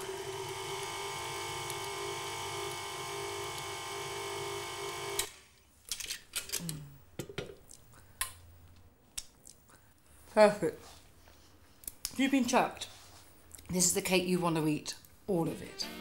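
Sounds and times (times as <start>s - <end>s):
stand mixer motor whine: 0.0s - 5.2s.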